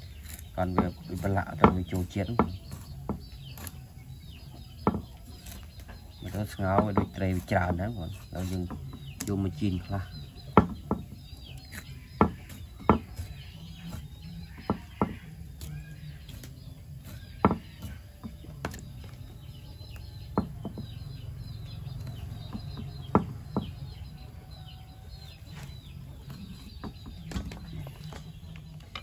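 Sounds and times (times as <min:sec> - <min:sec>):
birds chirping: 0:00.0 - 0:29.0
sharp knocks: 0:04.8 - 0:05.2, 0:10.4 - 0:11.4, 0:12.2 - 0:13.3, 0:17.4 - 0:18.9, 0:20.2 - 0:21.2, 0:22.2 - 0:24.0.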